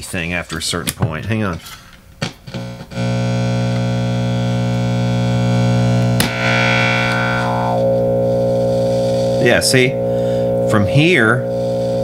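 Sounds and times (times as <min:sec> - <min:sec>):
electric guitar with wah: 0:03.8 - 0:12.0.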